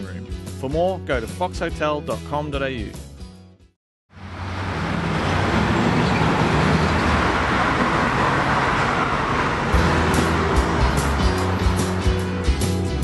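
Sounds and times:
passing cars: 4.1 - 13.0.

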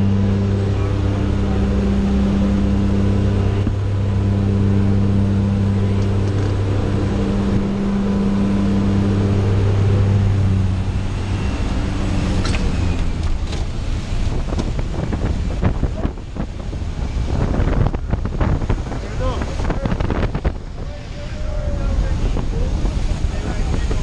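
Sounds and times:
plane engine and propeller droning: 0.0 - 24.0
wind rushing through open door: 6.0 - 24.0.

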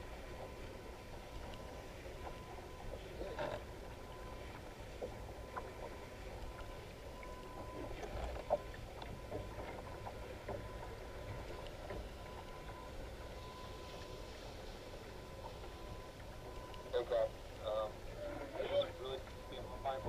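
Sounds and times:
water and wind against hull: 0.0 - 20.0
faint thin tone: 6.4 - 20.0.

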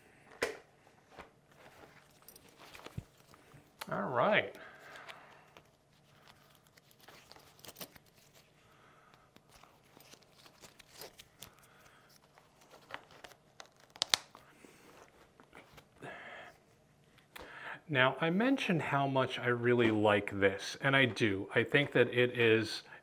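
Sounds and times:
helmet strap rustling and clicking: 0.3 - 4.0, 4.6 - 16.0.

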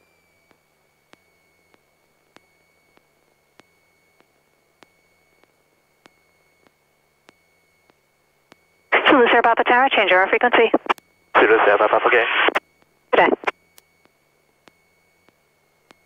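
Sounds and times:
faint high-pitched tone: 9.0 - 12.6
faint sharp radio clicks: 10.5 - 12.6.

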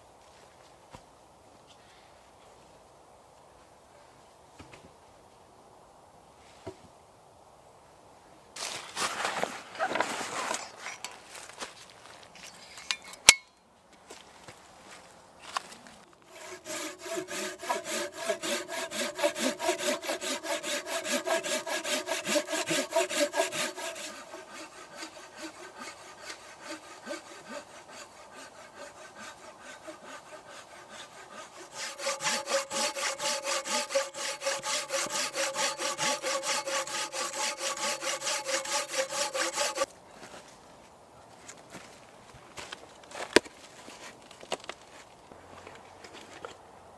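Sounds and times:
hand saw cutting a log: 16.3 - 39.9.

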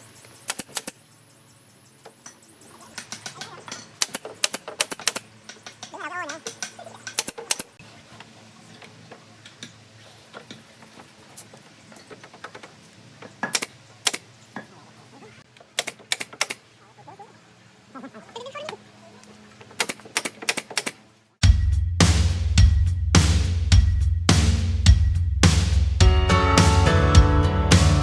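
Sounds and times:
nail gun firing: 0.5 - 1.0, 4.0 - 5.3, 7.2 - 7.7, 13.5 - 14.3, 15.7 - 16.6, 19.7 - 21.0.

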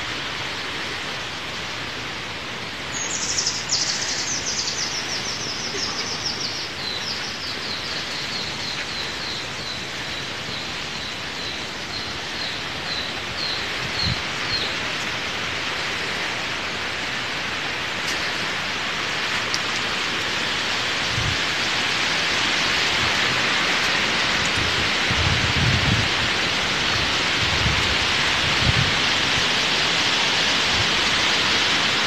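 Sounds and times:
forest ambience hiss: 0.0 - 32.0
bird chirps: 3.0 - 9.8.

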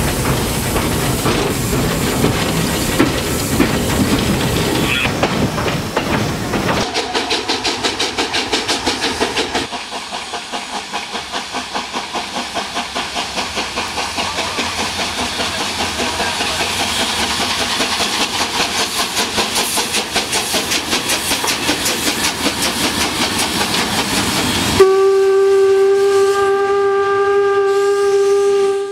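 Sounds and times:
steam locomotive exhaust beats: 0.0 - 28.9
steam whistle: 24.7 - 28.9.

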